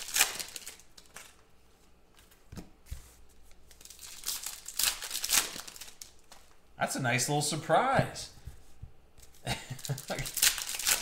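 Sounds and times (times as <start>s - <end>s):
foil wrapper crinkling and tearing: 0.0s - 1.5s, 3.6s - 6.5s, 9.7s - 11.0s.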